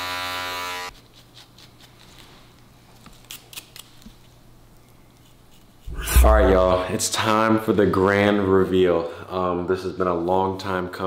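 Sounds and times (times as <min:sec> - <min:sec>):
electric hair trimmer buzzing: 0:00.0 - 0:00.9.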